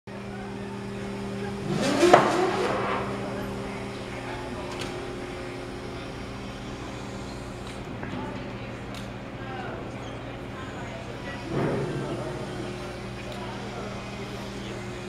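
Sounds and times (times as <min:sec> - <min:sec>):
ferry engines droning: 0:00.1 - 0:15.0.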